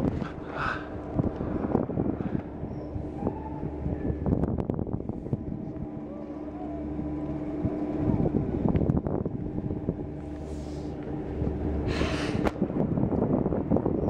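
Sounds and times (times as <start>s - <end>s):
strong wind buffeting microphone: 0.0s - 14.0s.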